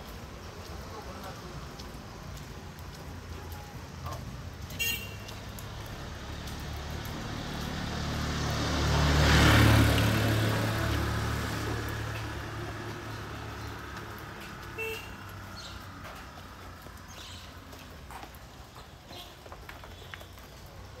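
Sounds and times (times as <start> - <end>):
vehicle driving past: 6.3 - 14.4.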